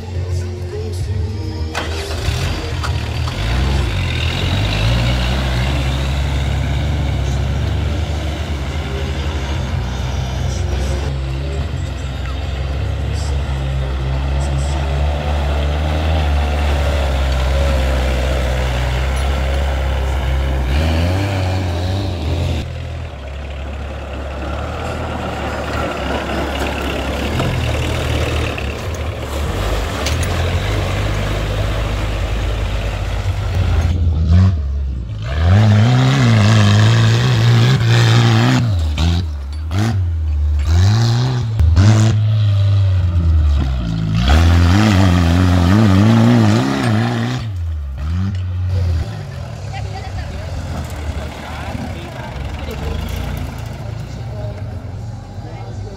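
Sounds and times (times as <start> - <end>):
small tractor engine running: 1.0 - 34.1, 49.4 - 55.9.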